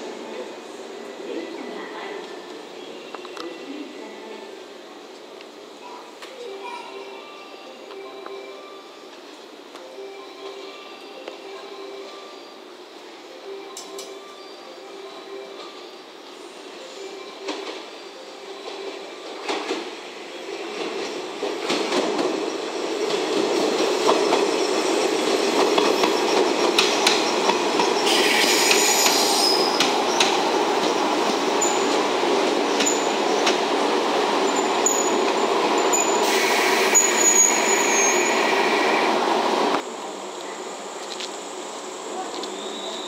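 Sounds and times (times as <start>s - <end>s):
train rumbling past: 8.0s - 43.0s
wheels squealing: 34.4s - 39.0s.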